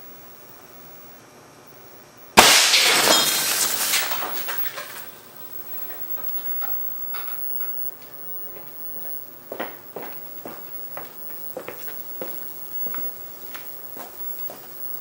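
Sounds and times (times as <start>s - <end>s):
air cannon shot: 2.4s - 4.4s
falling glass clinks: 2.4s - 5.1s
glass shattering: 2.4s - 7.8s.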